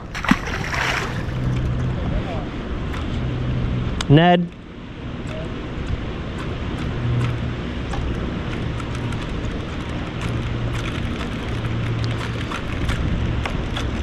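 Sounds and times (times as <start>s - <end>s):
creek water running: 0.0s - 1.9s.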